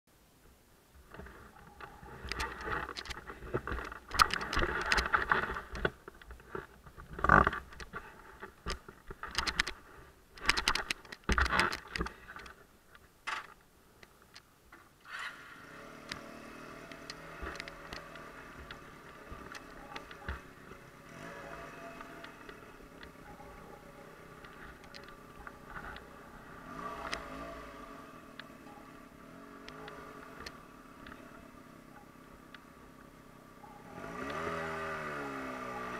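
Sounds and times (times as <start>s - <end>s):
knocks and rustles: 1.0s - 13.6s
motorcycle engine running: 15.3s - 35.9s.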